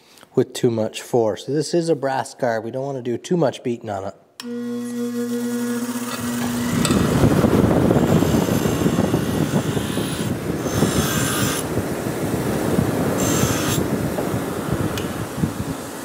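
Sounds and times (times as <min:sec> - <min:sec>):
bench grinder grinding steel: 0:04.4 - 0:11.7, 0:13.2 - 0:13.9.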